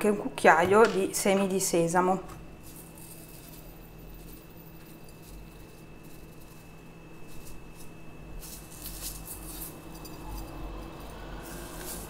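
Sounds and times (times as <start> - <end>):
seeds pattering into metal spoon: 7.3 - 12.0.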